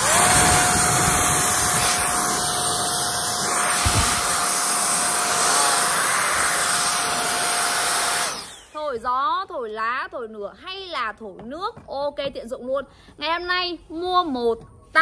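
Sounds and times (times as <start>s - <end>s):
jet blower rushing air: 0.0s - 8.8s.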